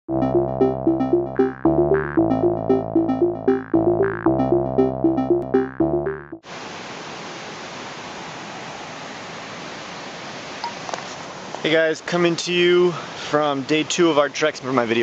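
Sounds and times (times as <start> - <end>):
synthesizer intro music: 0.1 - 6.4.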